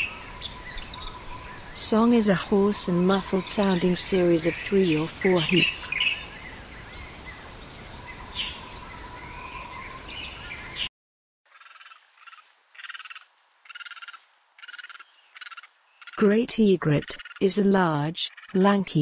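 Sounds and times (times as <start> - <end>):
bird chirps: 0.0 - 10.9, 11.5 - 19.0
steady outdoor hiss: 0.0 - 10.9, 11.5 - 19.0
raspy animal calls: 11.5 - 18.7.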